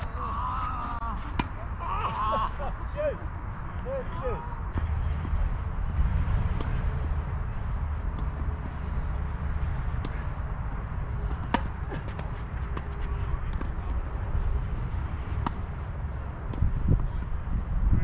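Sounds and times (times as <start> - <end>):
tennis balls struck and bouncing: 0.8 - 1.7, 6.5 - 14.0, 14.6 - 17.4.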